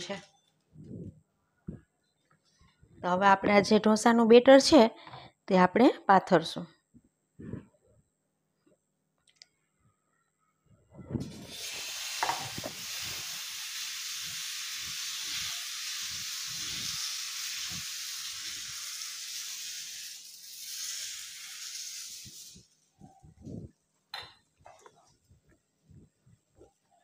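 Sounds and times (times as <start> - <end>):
batter sizzling on hot pan: 11.2 - 22.8.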